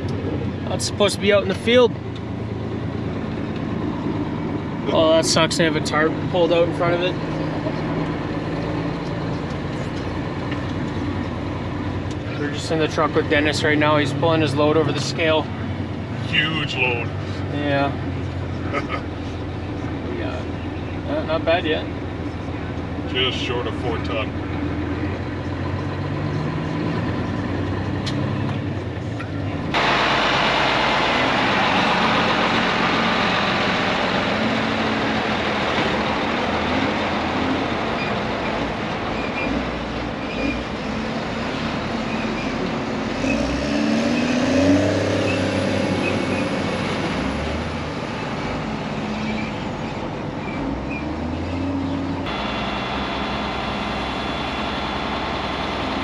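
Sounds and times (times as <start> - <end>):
diesel truck engines running: 0.0 - 56.0
truck engine revving: 0.0 - 56.0.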